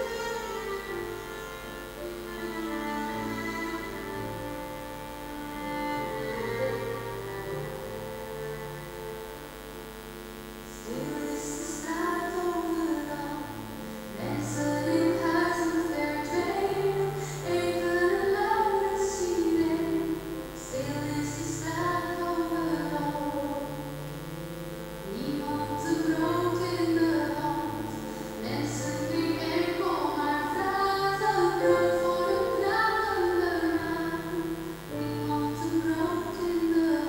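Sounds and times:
keyboard and violin accompaniment: 0:00.0 - 0:10.2, 0:10.8 - 0:37.0
woman singing slow song: 0:09.4 - 0:37.0.

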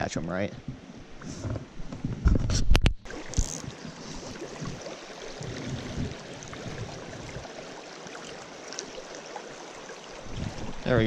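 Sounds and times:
creek water rushing: 0:03.1 - 0:11.0.

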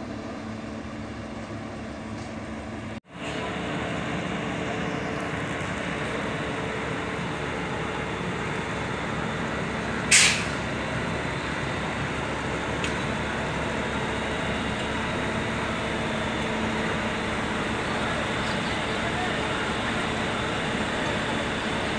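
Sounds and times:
rail vehicle engine running: 0:00.0 - 0:21.9
short loud hiss: 0:10.1 - 0:10.6.

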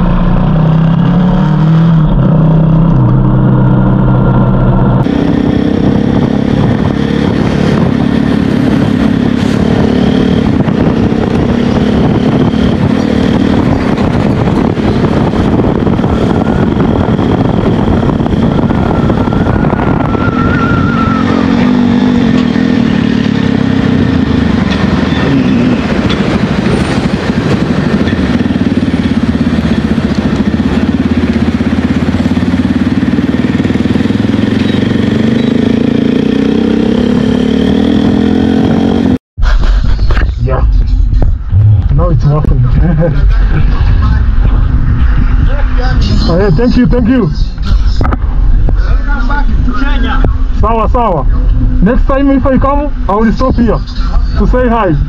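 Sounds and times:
motorcycle engine running: 0:00.0 - 0:55.0
wind noise on microphone: 0:00.0 - 0:55.0
short rising whistle: 0:18.8 - 0:21.6.

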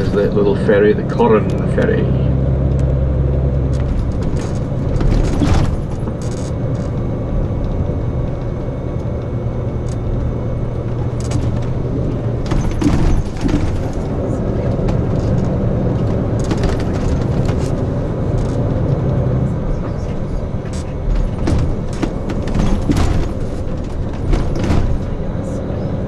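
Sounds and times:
coach engine and road drone: 0:00.0 - 0:26.0
brief knocks and rattles: 0:03.7 - 0:07.0, 0:12.4 - 0:18.6, 0:20.7 - 0:25.2.

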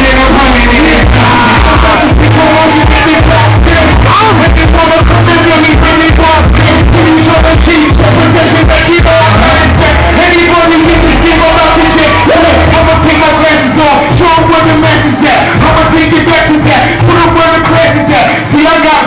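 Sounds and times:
hip-hop beat with heavy bass: 0:00.0 - 0:19.0
man rapping into a microphone: 0:00.0 - 0:19.0.

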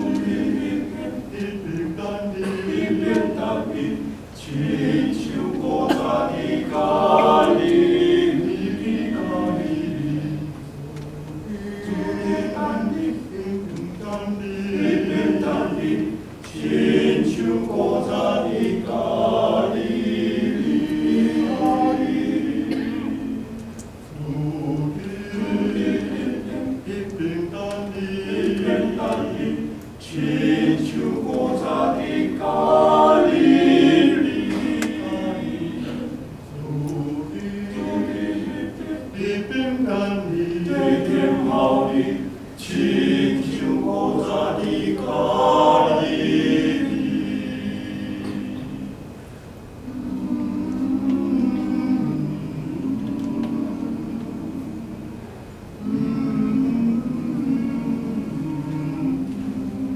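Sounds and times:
male choir singing a hymn: 0:00.0 - 0:49.1, 0:49.8 - 0:55.2, 0:55.8 - 0:59.9.

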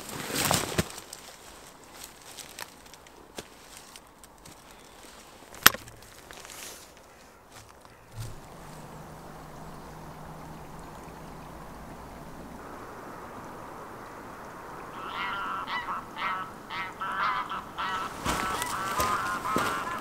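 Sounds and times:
background hiss: 0:00.0 - 0:20.0
geese honking: 0:14.8 - 0:20.0.

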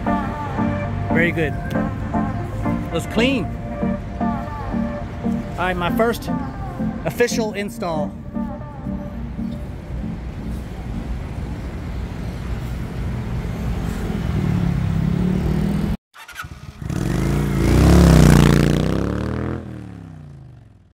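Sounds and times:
engine revving: 0:13.8 - 0:20.8.

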